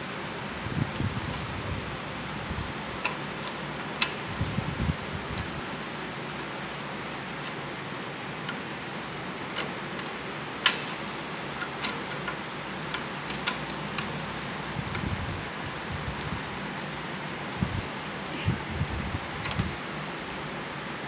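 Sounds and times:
spanner clicking against nut: 3.0s - 4.3s, 7.4s - 8.7s, 9.5s - 15.1s, 19.4s - 20.5s.

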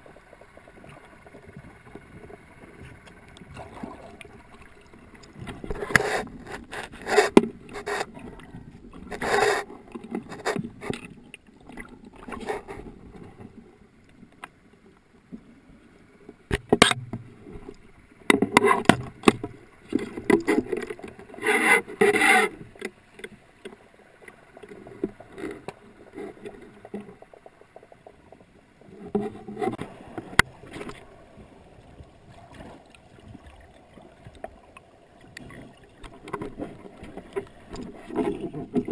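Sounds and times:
water swishing: 0.0s - 38.9s
speargun knocks and scrapes underwater: 5.3s - 8.2s, 16.5s - 17.2s, 18.3s - 23.3s.

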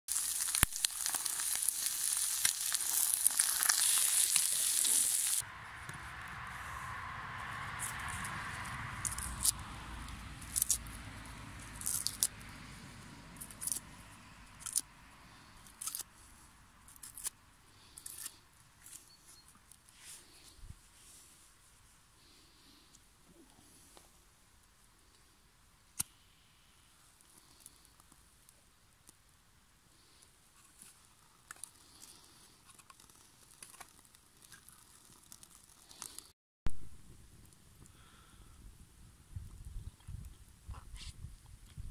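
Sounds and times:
kindling fire crackling: 0.1s - 13.9s, 29.9s - 36.3s.

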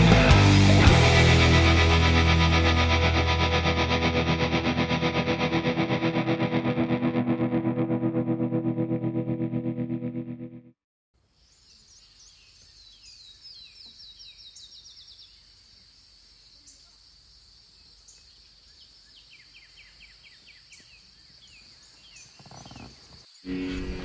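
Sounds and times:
bird calls falling notes: 19.2s - 23.8s.

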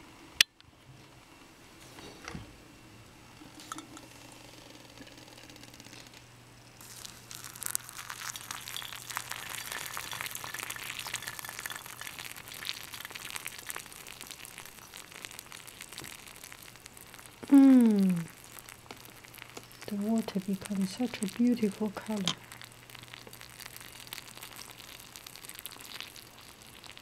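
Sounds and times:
hot water pouring into teapot: 6.8s - 27.0s
person humming: 17.4s - 18.3s.

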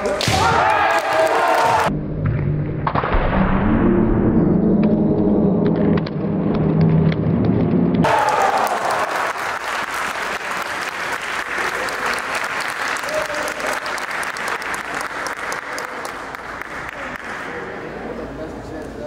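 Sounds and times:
spectators clapping: 0.8s - 1.9s, 6.0s - 17.7s.

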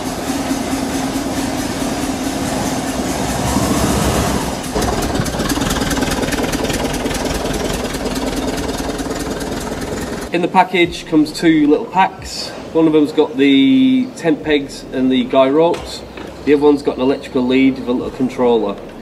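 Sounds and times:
van engine running: 0.0s - 10.3s.

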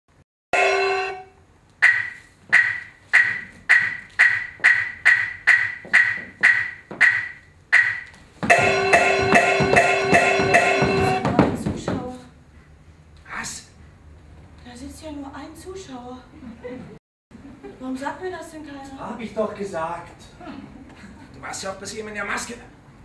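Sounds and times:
sustained gong tone: 0.6s - 1.4s, 8.5s - 11.3s
gong and cymbals clashing: 0.6s - 2.8s, 4.2s - 11.3s
ringing metal strikes: 0.6s - 11.4s.

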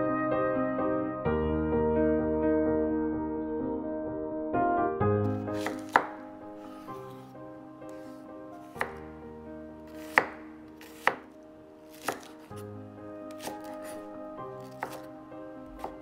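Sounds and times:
background music: 0.0s - 16.0s
knife chopping on wooden board: 5.4s - 7.2s, 7.9s - 9.1s, 9.9s - 12.7s, 13.3s - 15.1s, 15.7s - 16.0s.

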